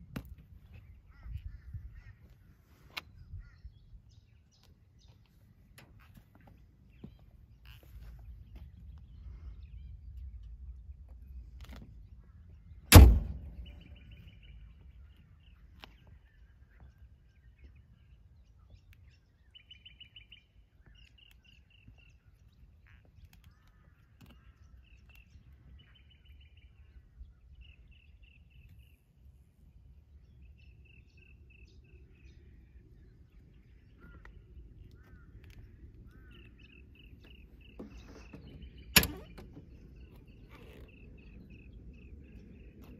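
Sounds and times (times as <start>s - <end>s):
small birds chirping: 0.0s - 42.9s
sharp loud knock: 12.9s - 13.6s.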